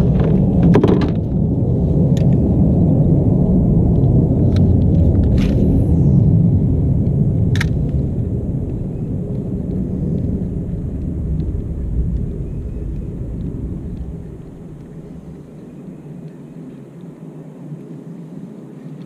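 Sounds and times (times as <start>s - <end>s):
wind rumbling on microphone: 0.0s - 19.0s.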